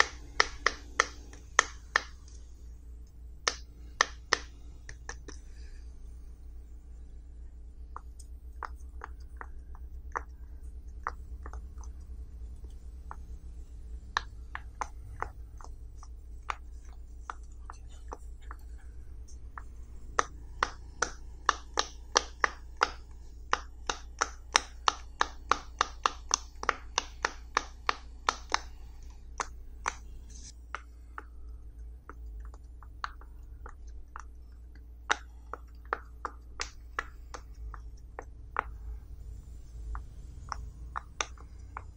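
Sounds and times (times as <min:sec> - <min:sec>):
low steady hum: 0:00.0 - 0:41.9.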